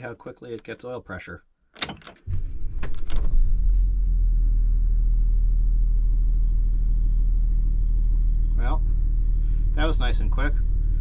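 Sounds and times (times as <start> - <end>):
diesel engine idling: 2.6 - 11.0.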